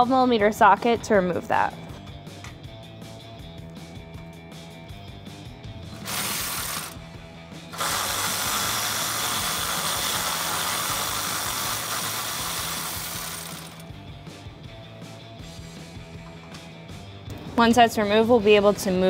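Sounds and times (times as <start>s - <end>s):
electric ratchet running: 5.9s - 7.1s, 7.7s - 14.0s.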